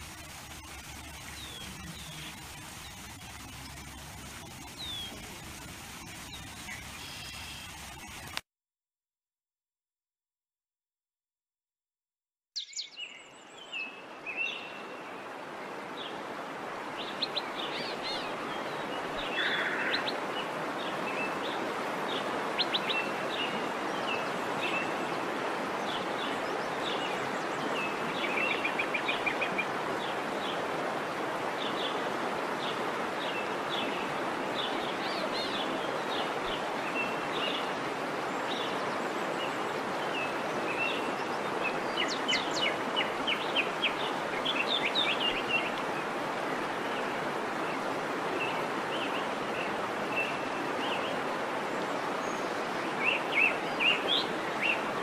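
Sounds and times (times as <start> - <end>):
small birds chirping: 0.0 - 8.4
steady rushing noise: 0.0 - 8.4.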